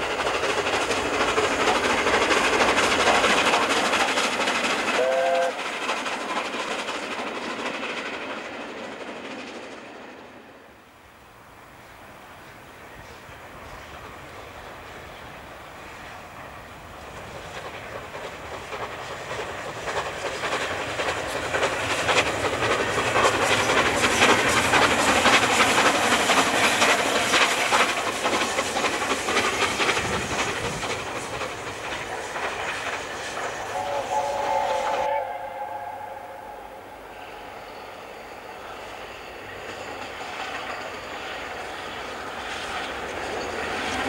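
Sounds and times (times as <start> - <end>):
steam locomotive passing at speed: 0.0 - 44.0.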